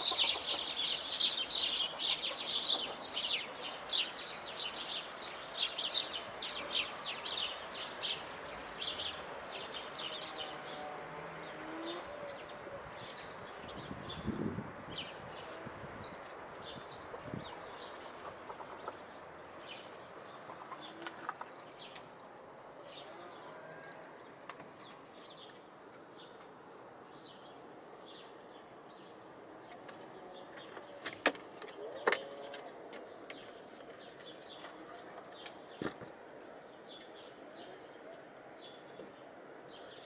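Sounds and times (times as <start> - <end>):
hens calling: 0.0 - 4.2
birds chirping: 0.0 - 40.0.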